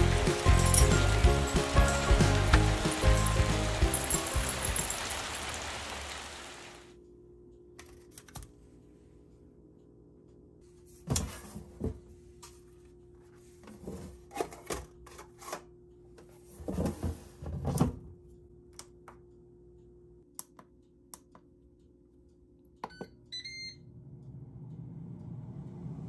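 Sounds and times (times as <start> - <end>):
air fryer fan running: 0.0 - 4.5.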